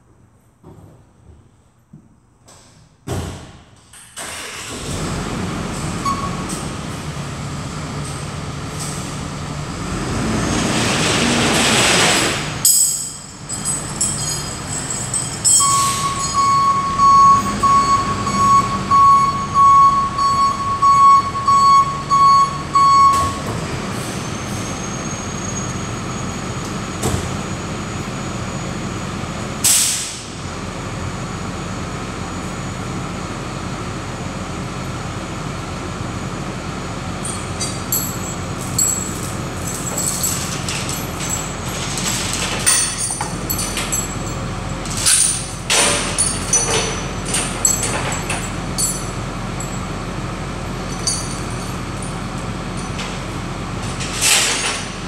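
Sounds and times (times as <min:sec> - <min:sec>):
truck engine starting and running: 0:03.8 - 0:55.0
reverse alarm beeping: 0:15.5 - 0:23.5.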